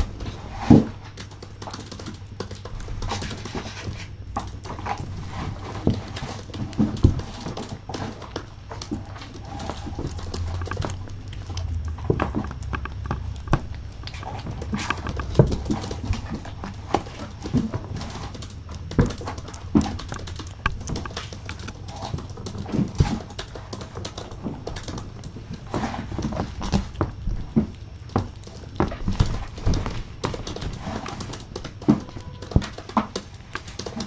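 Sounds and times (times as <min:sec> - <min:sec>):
knocks and thumps: 0:02.0 - 0:34.0.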